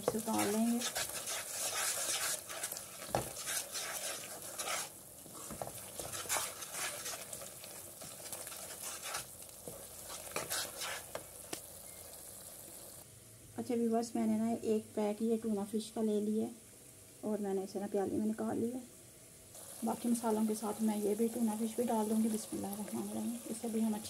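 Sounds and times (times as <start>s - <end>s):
wooden spoon scraping a pan: 0.0s - 11.3s
sauce sizzling: 0.0s - 13.0s, 19.5s - 24.0s.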